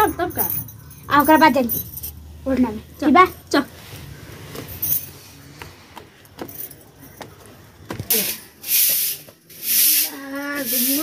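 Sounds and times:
broom sweeping a bare floor: 8.1 - 11.0.

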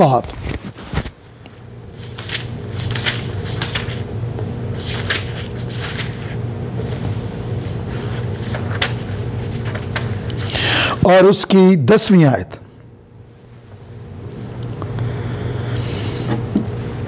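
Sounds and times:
book pages rustling: 0.2 - 1.2, 1.9 - 10.5.

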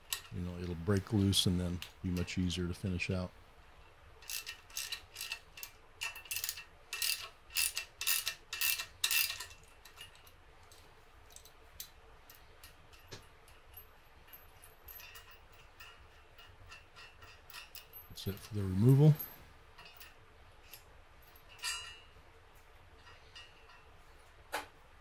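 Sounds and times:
ratchet wrench clicking: 4.2 - 10.3
metal ticks and clinks: 4.2 - 22.2.

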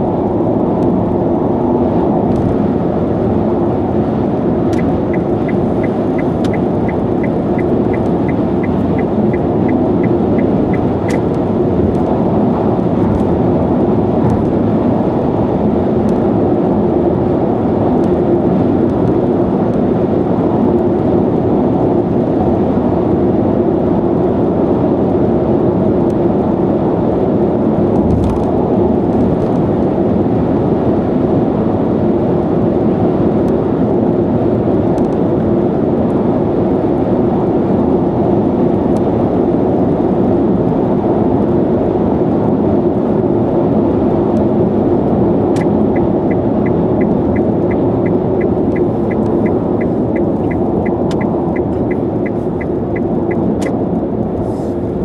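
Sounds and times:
tyre and road noise: 0.0 - 55.0
turn signal ticking: 4.7 - 12.1, 45.5 - 54.4.

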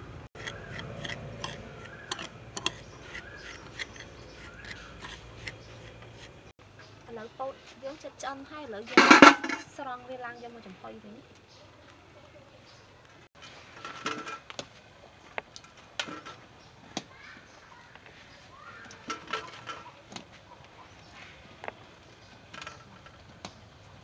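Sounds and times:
faint bird chirps: 0.4 - 5.9.

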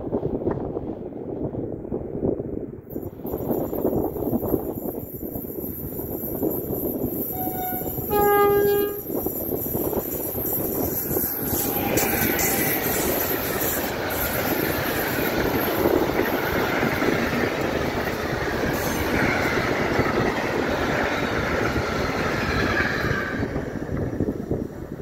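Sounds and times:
locomotive passing: 2.9 - 25.0
train wagons rumbling past: 2.9 - 25.0
high wheel squeal: 6.4 - 16.0.

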